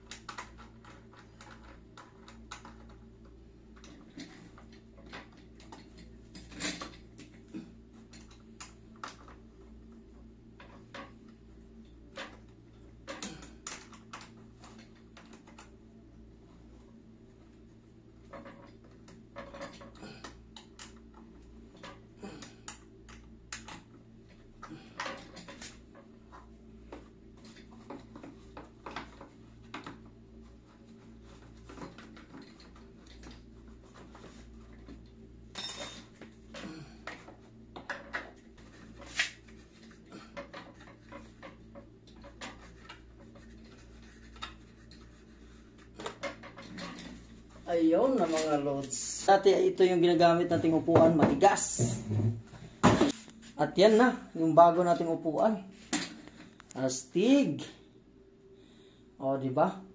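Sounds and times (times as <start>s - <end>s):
chair parts clicking and rattling: 0.0s - 9.5s, 12.0s - 15.8s, 18.2s - 30.1s, 31.0s - 49.2s.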